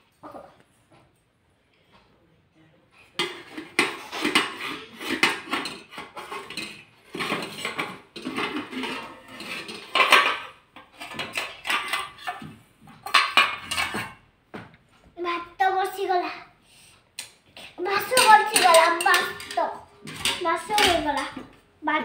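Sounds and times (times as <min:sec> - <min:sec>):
metal utensils clanking on pots: 0:03.0 - 0:14.2, 0:17.6 - 0:21.6.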